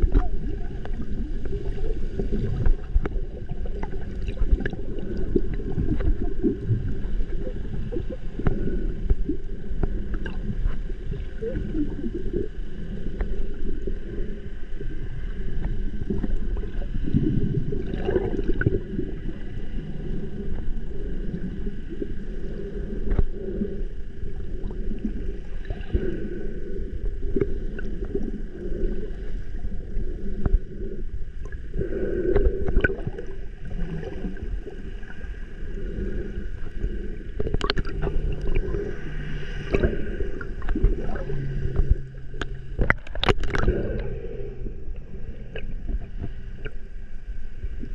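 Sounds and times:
low steady drone: 0.0 - 47.9
underwater rumble and sloshing: 0.0 - 47.9
steady high hum: 18.5 - 47.9.

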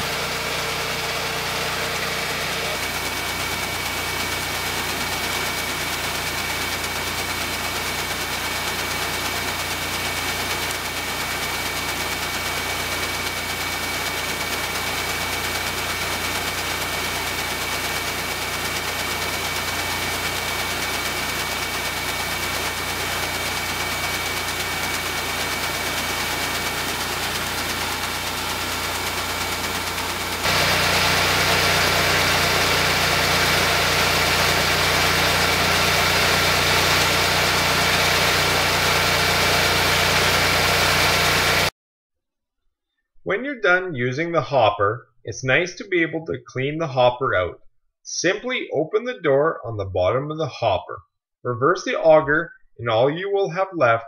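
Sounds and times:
grain auger drone: 0.0 - 41.7
grain pouring: 17.6 - 41.7.

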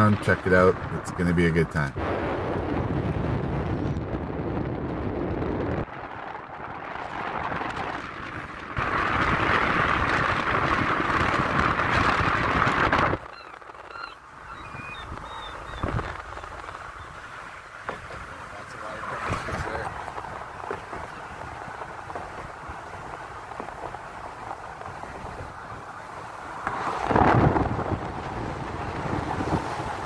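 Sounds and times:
loud steady rushing noise: 0.0 - 30.0.

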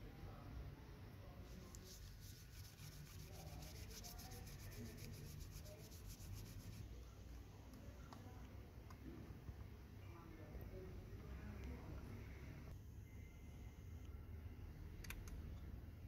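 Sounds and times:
cloth rubbing on plastic: 1.5 - 6.8.

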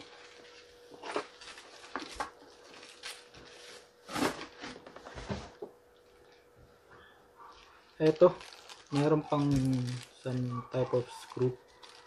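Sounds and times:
hands rummaging through plastic bag: 0.0 - 5.0, 7.5 - 12.0.

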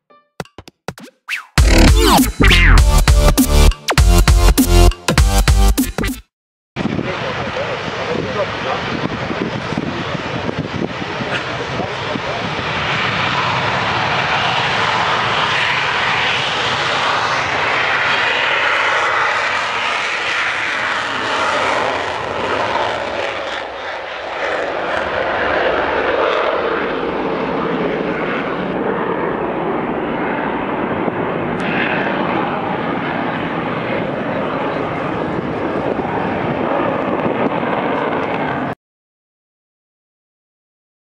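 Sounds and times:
jet engine roaring: 6.8 - 38.8.

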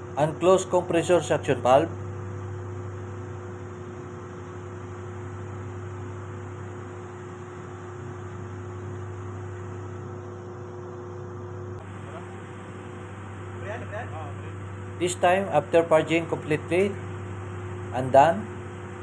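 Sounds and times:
machinery hum: 0.0 - 19.0.

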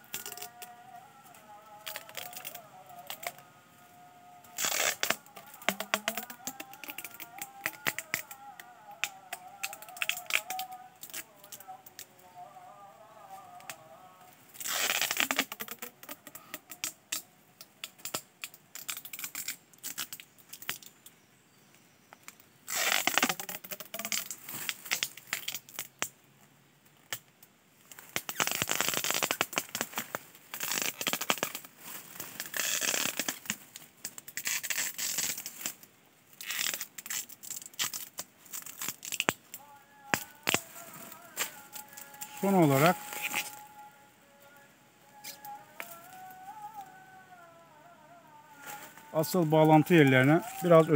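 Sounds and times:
plastic wrap crackling: 0.0 - 12.1, 14.5 - 21.0, 22.3 - 26.1, 27.9 - 47.2, 48.4 - 50.9
plastic film sharp ticks: 0.1 - 0.7, 1.8 - 3.4, 4.6 - 12.1, 14.6 - 21.1, 22.2 - 26.1, 26.9 - 31.7, 32.3 - 35.8, 36.4 - 43.7.

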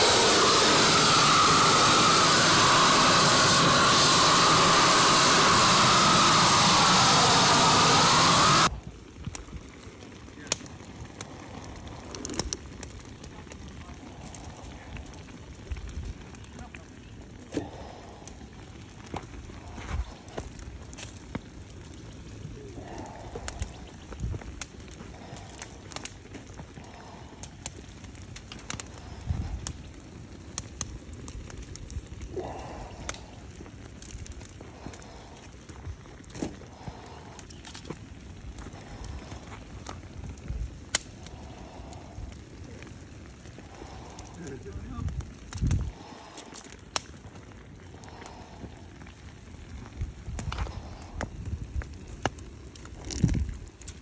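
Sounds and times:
low rumble: 0.0 - 8.9
burners roaring: 0.0 - 54.0
molten metal crackling and popping: 0.0 - 54.0.

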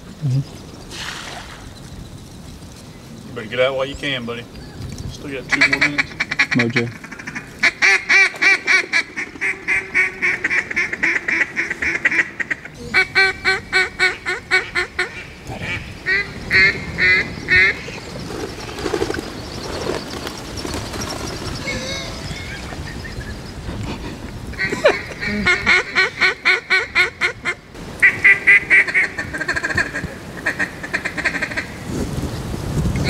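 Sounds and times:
duck call quacking: 5.5 - 17.8, 24.5 - 31.7.

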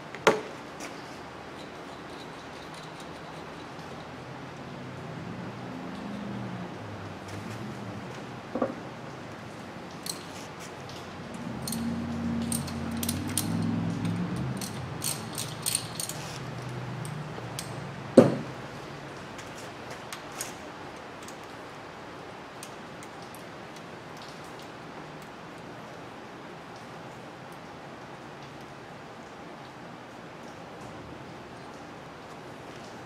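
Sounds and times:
hand tools clinking on metal: 11.6 - 17.8.

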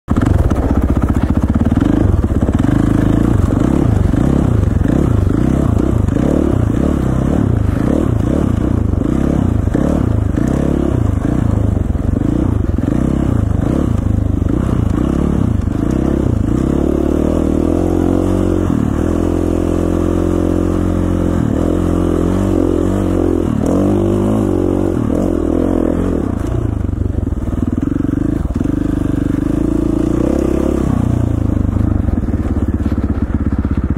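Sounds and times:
dirt bike engine revving: 0.1 - 33.9.

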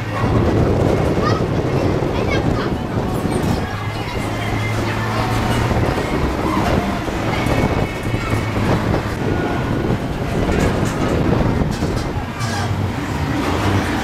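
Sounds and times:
engine low hum: 0.0 - 14.0
ride carriage rattling and rumbling: 0.0 - 14.0.

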